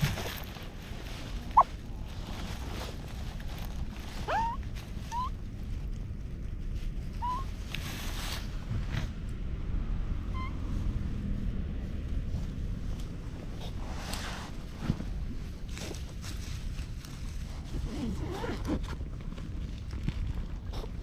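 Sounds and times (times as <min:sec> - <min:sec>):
wind rumble on microphone: 0:00.0 - 0:21.0
kitten mewing: 0:04.2 - 0:05.3.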